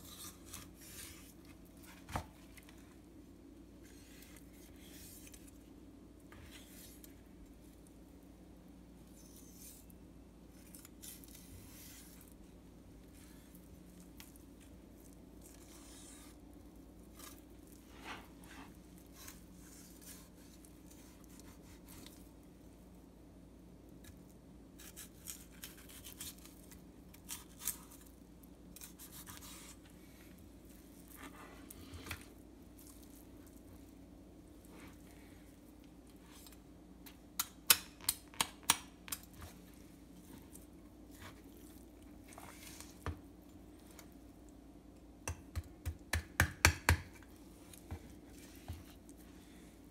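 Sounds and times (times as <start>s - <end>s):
knife slicing and scraping fish: 0.0s - 2.2s, 10.6s - 12.4s, 15.4s - 16.4s, 17.0s - 22.3s, 24.8s - 28.1s, 28.7s - 29.9s.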